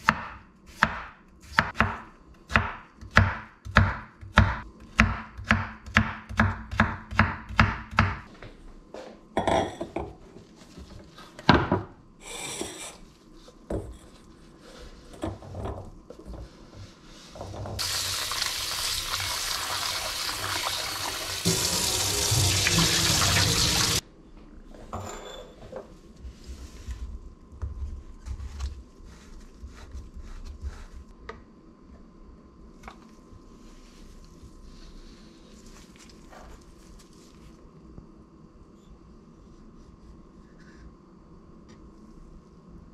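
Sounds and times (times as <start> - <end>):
knife chopping on cutting board: 0.0 - 8.2
tap running into metal sink: 21.5 - 24.0.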